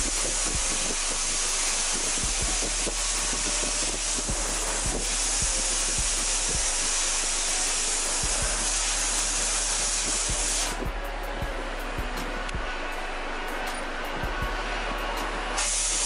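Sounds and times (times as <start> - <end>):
blast nozzle hissing: 0.0 - 11.1, 15.0 - 16.0.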